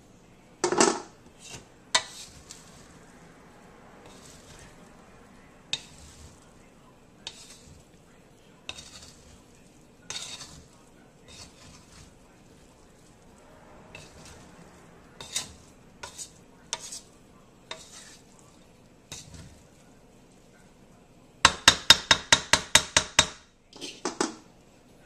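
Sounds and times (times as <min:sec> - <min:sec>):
faint sizzle: 0:00.0 - 0:25.0
spatula scraping wok: 0:00.6 - 0:25.0
spatula clinking on pan: 0:10.1 - 0:10.6, 0:21.4 - 0:24.4.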